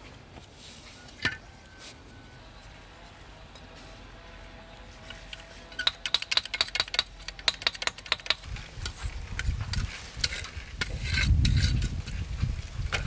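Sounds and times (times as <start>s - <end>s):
knife tapping and scraping bricks: 5.1s - 12.0s
bricks scuffing and knocking on dirt: 5.1s - 13.0s.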